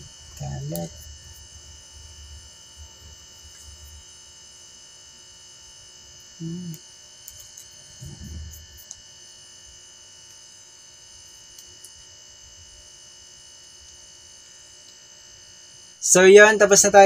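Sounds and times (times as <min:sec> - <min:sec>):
steady electrical hum: 0:00.0 - 0:17.0
short low buzz: 0:07.8 - 0:09.0
rough low handling sound: 0:08.0 - 0:08.8.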